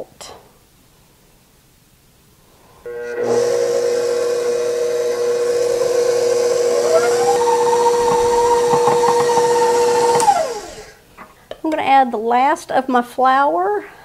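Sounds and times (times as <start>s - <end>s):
stand mixer motor whine: 2.9s - 11.0s.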